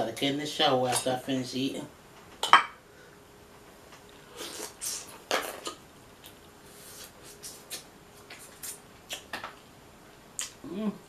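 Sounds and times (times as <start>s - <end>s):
wet eating smacks and sucks: 7.0s - 9.4s, 10.4s - 10.6s
lip and tongue clicks: 8.6s - 9.3s, 10.4s - 10.6s.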